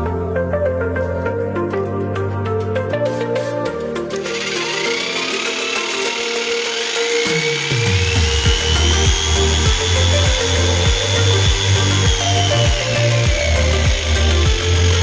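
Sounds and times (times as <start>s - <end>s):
music with low beat: 2.2s - 15.0s
electric clipper motor whine: 4.1s - 15.0s.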